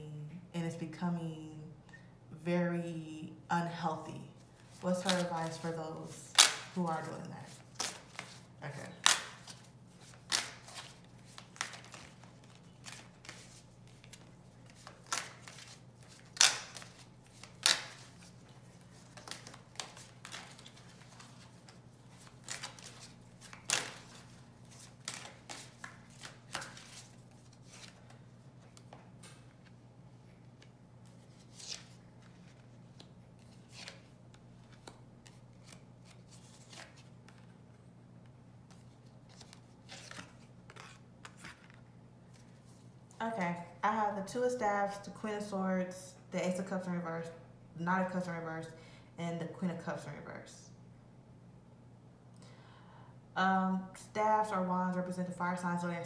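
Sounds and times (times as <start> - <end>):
cards being shuffled: 4.5 - 29.8, 30.5 - 37.6, 38.6 - 42.6.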